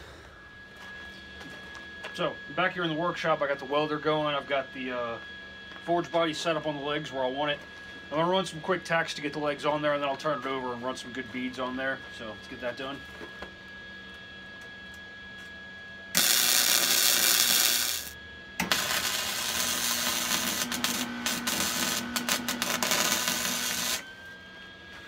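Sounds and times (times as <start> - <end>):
welder arc crackling: 16.2 - 24.0.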